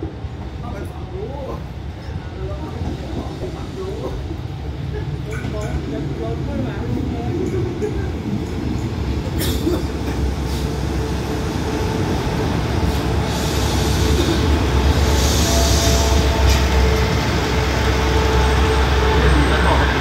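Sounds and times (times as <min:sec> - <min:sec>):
train engines and wheels rumbling: 0:00.0 - 0:20.0.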